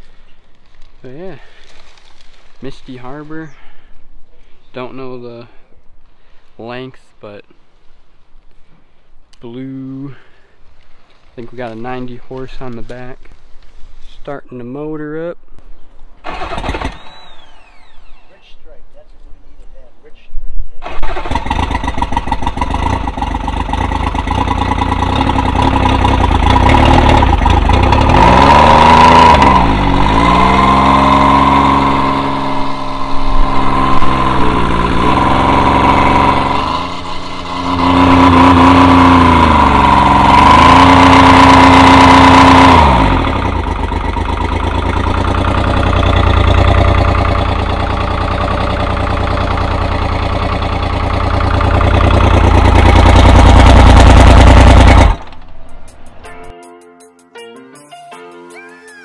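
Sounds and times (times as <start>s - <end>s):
outboard motor revving: 20.9s - 55.4s.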